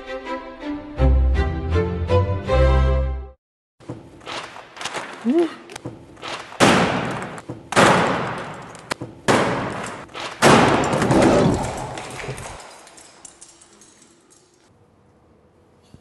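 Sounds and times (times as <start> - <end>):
loud bangs: 6.2 - 12.6.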